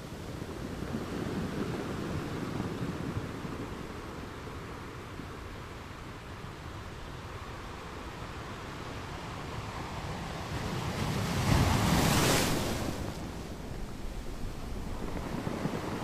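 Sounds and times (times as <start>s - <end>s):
ocean water rushing: 9.3s - 16.0s.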